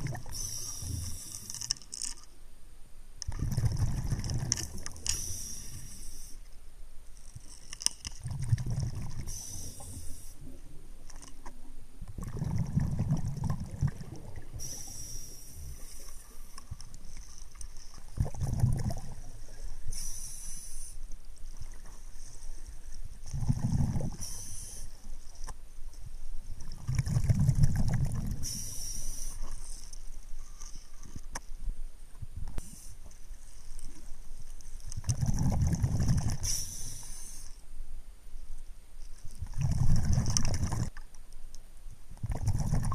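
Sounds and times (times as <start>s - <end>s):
exhaled bubbles rumbling: 0.0s - 1.0s, 3.3s - 5.0s, 8.2s - 9.8s, 12.0s - 14.9s, 17.9s - 19.8s, 23.2s - 24.4s, 26.6s - 28.6s, 35.0s - 36.5s, 39.4s - 41.0s, 42.2s - 42.9s
regulator inhalation hiss: 0.3s - 1.5s, 5.1s - 6.4s, 9.3s - 10.4s, 14.6s - 16.6s, 19.8s - 21.1s, 24.2s - 25.1s, 28.4s - 29.6s, 36.4s - 37.6s.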